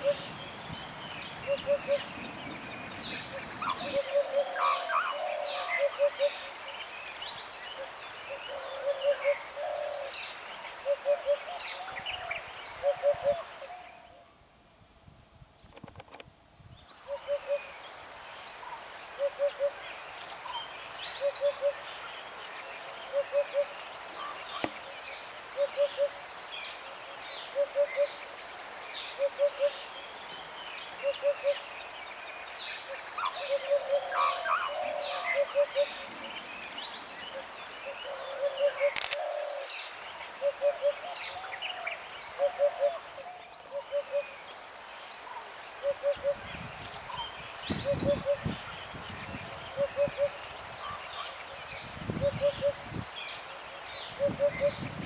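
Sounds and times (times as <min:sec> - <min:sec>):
birds calling: 0:00.0 - 0:06.5, 0:18.6 - 0:26.2, 0:32.8 - 0:55.0
background hiss: 0:00.0 - 0:55.0
sharp click: 0:39.0 - 0:39.2.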